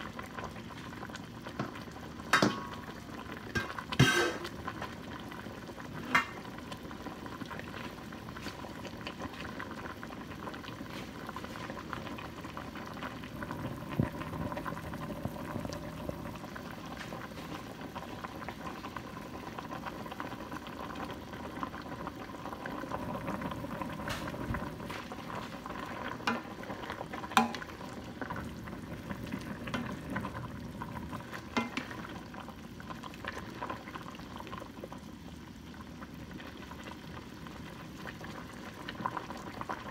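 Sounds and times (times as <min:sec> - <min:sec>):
broth bubbling in pot: 0:00.0 - 0:39.9
knocks against pot: 0:02.3 - 0:02.7
ladle stirring soup: 0:24.0 - 0:28.3.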